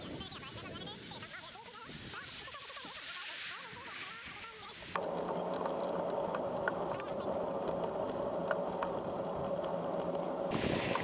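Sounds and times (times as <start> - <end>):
bicycle tyres on rough asphalt: 0.0 - 11.0
small rattles and clicks: 5.0 - 11.0.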